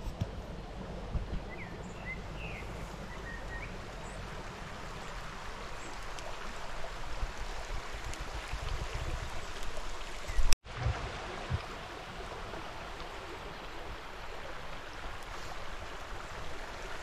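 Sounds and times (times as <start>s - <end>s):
stream running over stones: 0.0s - 17.0s.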